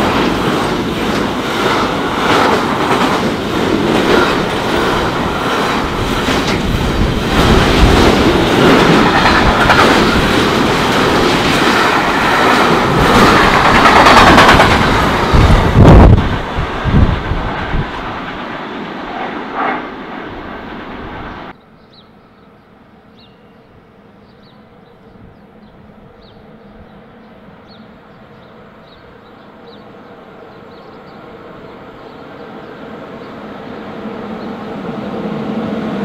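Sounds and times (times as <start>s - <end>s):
train wheels clattering: 0.0s - 15.7s
approaching train rumble: 0.0s - 36.0s.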